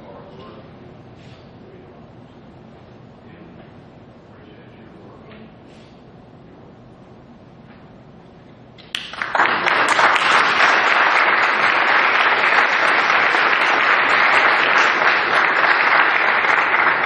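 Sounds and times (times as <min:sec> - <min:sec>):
audience applause: 0:08.9 - 0:17.0.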